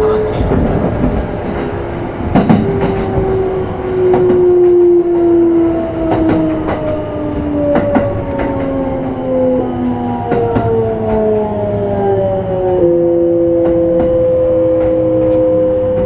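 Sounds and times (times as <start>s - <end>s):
wheels clacking over rail joints: 0.0s - 9.2s
train running gear rumble: 0.0s - 16.0s.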